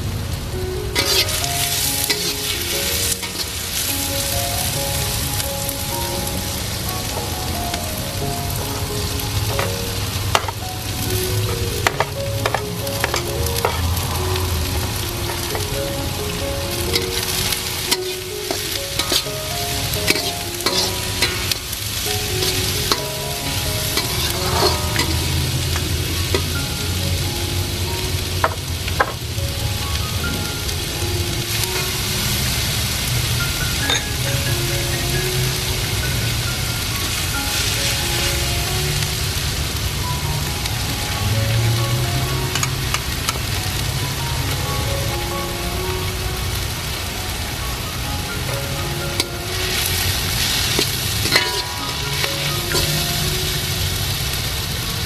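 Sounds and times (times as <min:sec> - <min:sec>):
vegetables sizzling in a wok: 0:00.0 - 0:55.0
spatula scraping a wok: 0:01.0 - 0:01.4, 0:20.1 - 0:21.6, 0:23.8 - 0:25.8.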